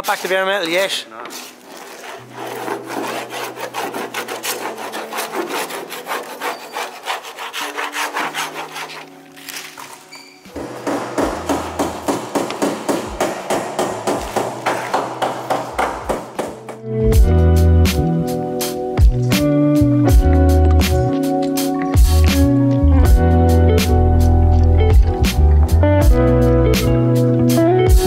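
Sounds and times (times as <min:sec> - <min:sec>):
paint scraper rasping on metal: 0:01.2 - 0:13.0.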